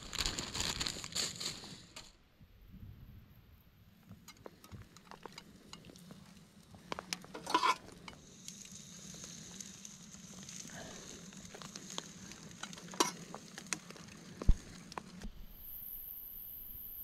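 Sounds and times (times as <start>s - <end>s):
raindrops pattering on foil: 0.0s - 2.1s, 4.4s - 15.1s.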